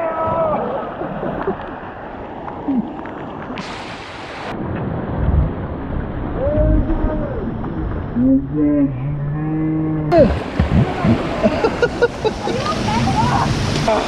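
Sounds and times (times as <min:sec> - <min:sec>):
rushing splashing water: 0:00.0 - 0:08.2, 0:10.1 - 0:14.0
low rumbling thumps: 0:04.5 - 0:12.1.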